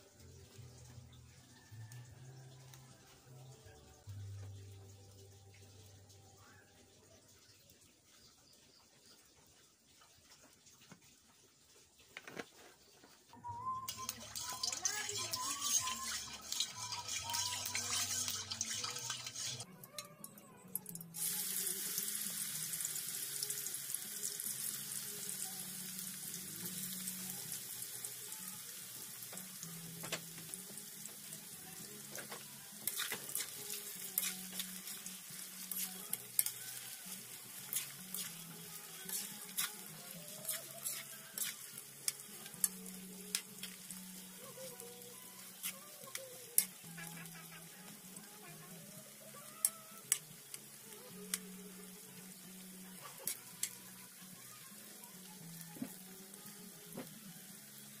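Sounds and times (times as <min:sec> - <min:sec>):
food deep-frying in hot oil: 0:00.0 - 0:19.7, 0:20.8 - 0:58.0
metal spoon scraping a wok: 0:13.9 - 0:19.7, 0:32.8 - 0:43.8.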